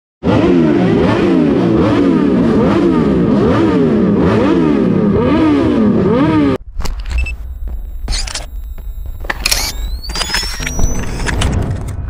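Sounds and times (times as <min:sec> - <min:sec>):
motorcycles revving: 0:00.2 - 0:06.6.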